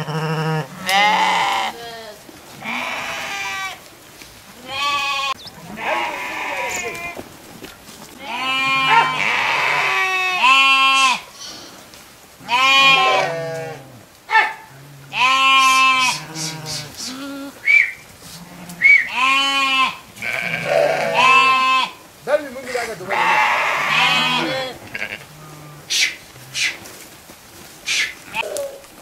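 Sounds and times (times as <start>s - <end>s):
sheep bleating: 0.0s - 3.8s, 4.6s - 7.2s, 8.2s - 11.3s, 12.4s - 13.9s, 15.0s - 17.6s, 18.3s - 22.0s, 22.6s - 26.7s
short high sheep cries: 4.6s - 7.2s, 8.2s - 11.2s, 12.5s - 17.6s, 18.3s - 22.0s, 22.7s - 25.2s.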